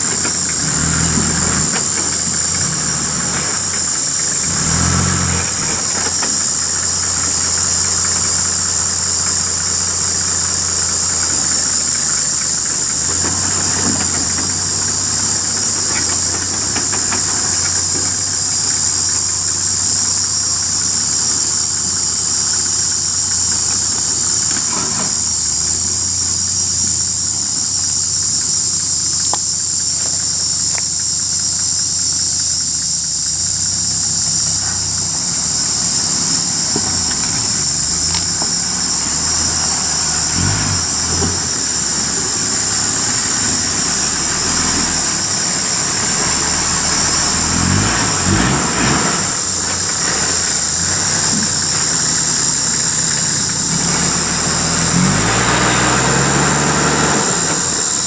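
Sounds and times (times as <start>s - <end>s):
diesel engine at low revs: 0.0s - 58.0s
insect drone: 0.0s - 58.0s.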